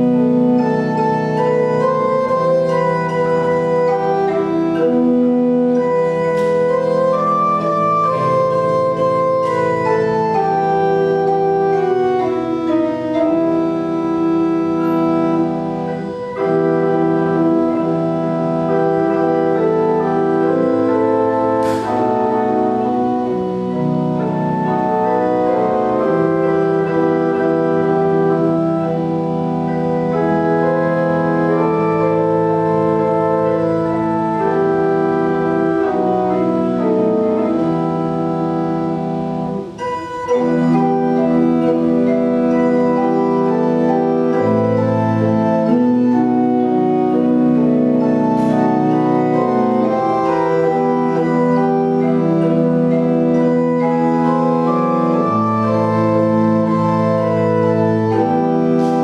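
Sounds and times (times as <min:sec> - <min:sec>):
church organ chords: 0:00.0 - 0:59.0.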